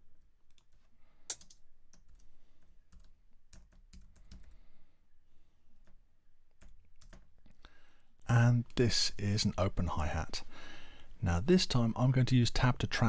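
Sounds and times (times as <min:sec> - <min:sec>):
keyboard keys clicking: 0:06.6 - 0:07.3.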